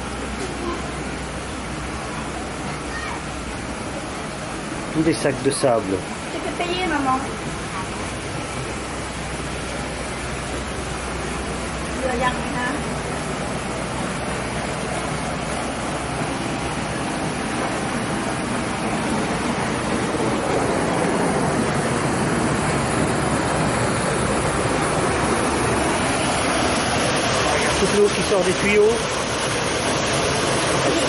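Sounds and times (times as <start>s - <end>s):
flowing water rushing: 0.0s - 31.0s.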